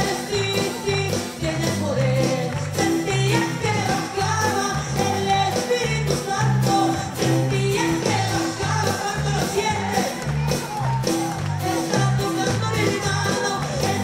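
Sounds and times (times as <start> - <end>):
woman singing: 0.0 - 10.6, 11.3 - 14.0
band playing: 0.0 - 14.0.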